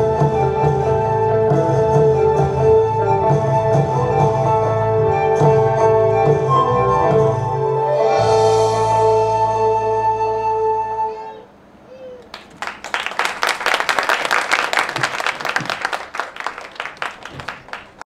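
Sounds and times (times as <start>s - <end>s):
audience applause: 12.2s - 18.0s.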